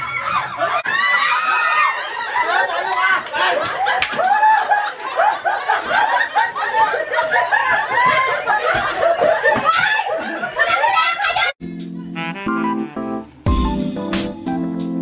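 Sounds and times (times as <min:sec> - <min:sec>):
crowd laughing loudly: 0:00.0 - 0:11.6.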